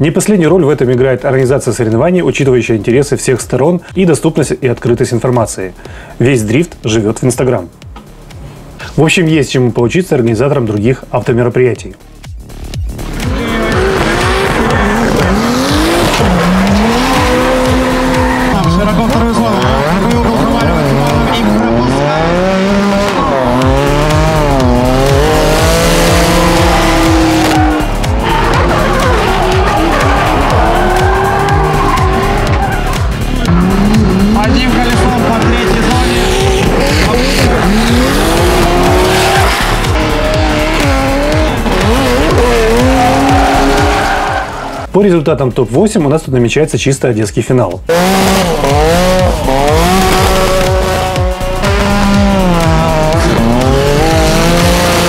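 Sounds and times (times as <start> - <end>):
background music with steady beat: 0.0 - 55.0
car engines revving: 12.5 - 44.9, 47.9 - 55.0
tyres squealing: 25.8 - 44.9.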